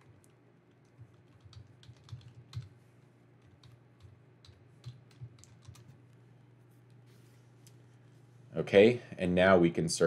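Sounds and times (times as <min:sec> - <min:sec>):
computer keyboard typing: 0:00.8 - 0:02.7, 0:03.4 - 0:06.0.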